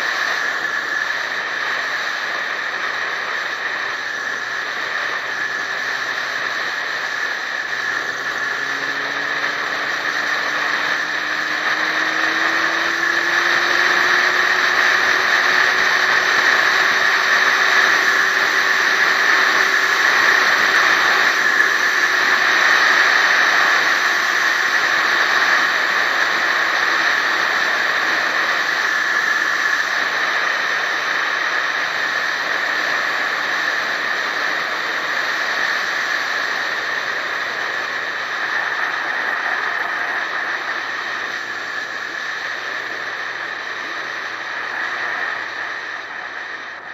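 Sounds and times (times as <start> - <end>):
faint hum rising in pitch: 0.0 - 30.2
wind and road noise: 0.0 - 46.9.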